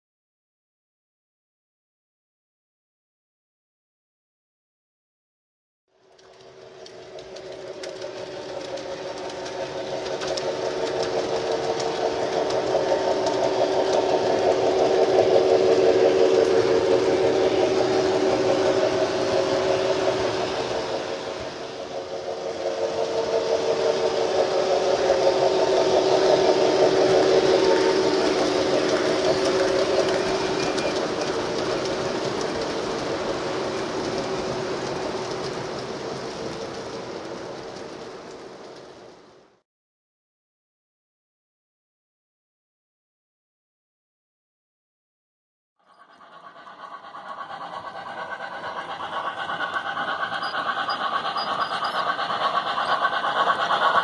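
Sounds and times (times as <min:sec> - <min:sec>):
model trains running on rails: 0:05.9 - 0:39.6, 0:45.8 - 0:54.0.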